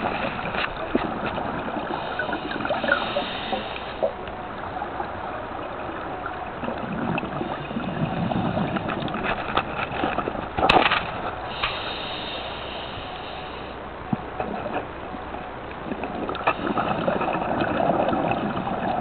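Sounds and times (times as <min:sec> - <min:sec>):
steady hiss: 0:00.0 - 0:05.5, 0:11.2 - 0:14.3
gurgling exhaled bubbles: 0:00.0 - 0:10.7, 0:15.8 - 0:19.0
diver breathing underwater: 0:01.7 - 0:04.2, 0:11.5 - 0:13.8.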